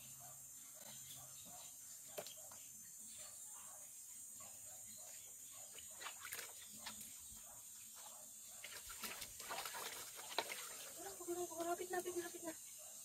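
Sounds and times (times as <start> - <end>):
water splashing: 8.6 - 11.7.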